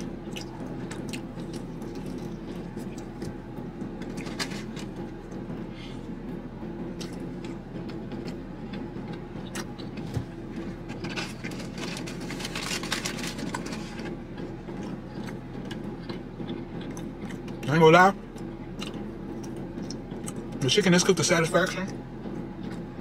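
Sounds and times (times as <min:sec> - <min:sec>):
car idling hum: 0:00.0 - 0:23.0
cardboard box crinkling: 0:11.0 - 0:14.1.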